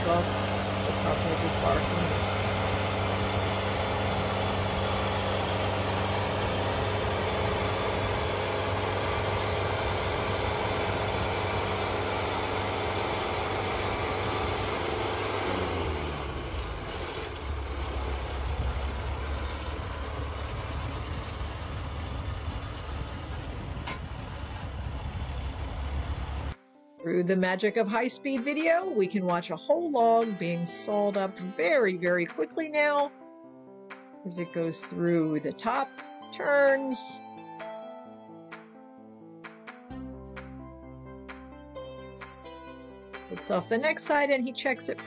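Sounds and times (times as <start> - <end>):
band sawmill engine running: 0.0 - 26.6.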